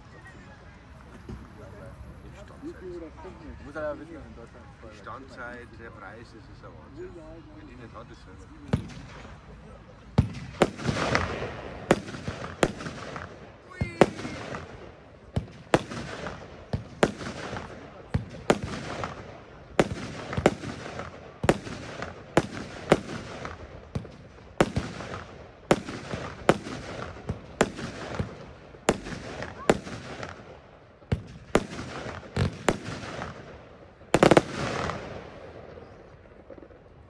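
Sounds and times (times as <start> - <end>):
firework battery bangs: 10.1 - 35.6.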